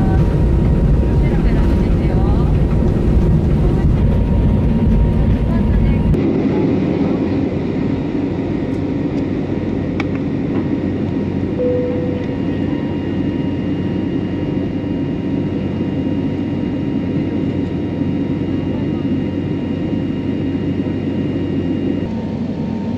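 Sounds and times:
airplane cabin engine roar: 0.0s - 22.9s
short cabin tone: 11.6s - 13.2s.

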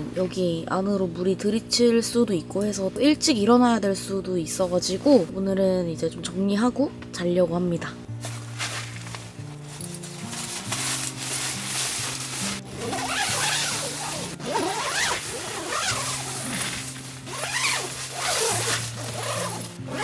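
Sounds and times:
soft background music: 0.0s - 20.0s
tent zipper being pulled: 10.0s - 20.0s.

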